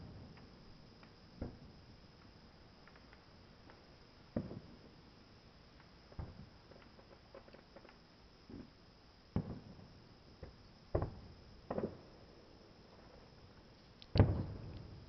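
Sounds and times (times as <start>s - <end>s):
distant fireworks booms: 0.0s - 5.0s, 5.8s - 7.4s, 9.3s - 15.0s.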